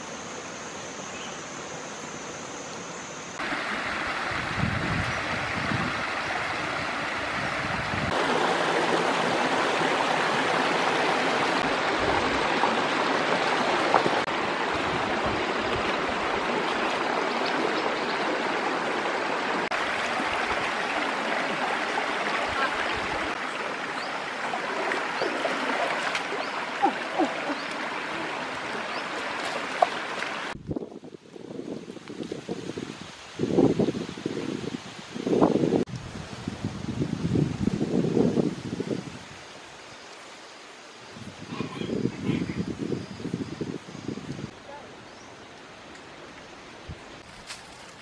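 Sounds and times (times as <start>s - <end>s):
stream babbling over stones: 3.4s - 30.6s.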